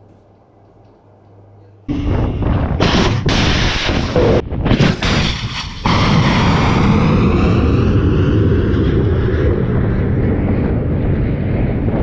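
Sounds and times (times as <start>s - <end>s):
rocket motor roaring: 1.9s - 12.0s.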